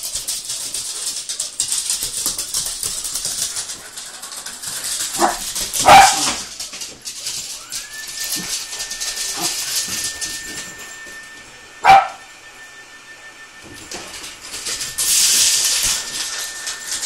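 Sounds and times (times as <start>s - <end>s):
dog claws scrabbling on wood floor: 0.1s - 7.6s
dog barking: 5.2s - 6.4s, 11.8s - 12.3s.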